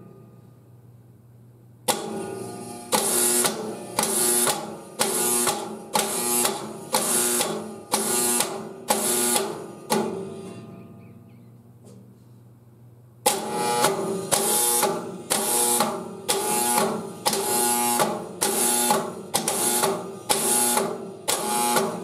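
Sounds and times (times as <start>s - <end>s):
siren solenoid clacking and buzzing: 1.8s - 10.2s, 13.2s - 22.0s.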